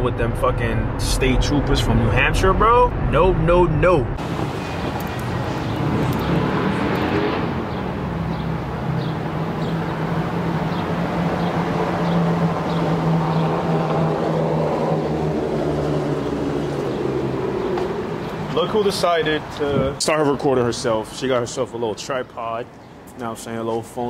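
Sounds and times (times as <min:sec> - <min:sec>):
car engine and road noise: 0:00.0 - 0:21.8.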